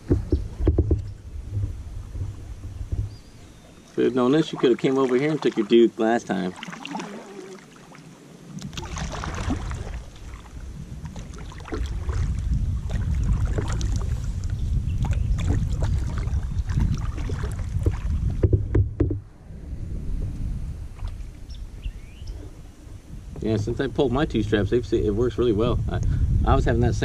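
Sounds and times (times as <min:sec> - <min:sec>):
short knocks: 0:00.0 - 0:03.5, 0:17.8 - 0:19.2
steady low rumble: 0:00.0 - 0:03.6, 0:08.6 - 0:27.0
paddle splashing and dripping: 0:00.0 - 0:19.4, 0:20.9 - 0:23.6.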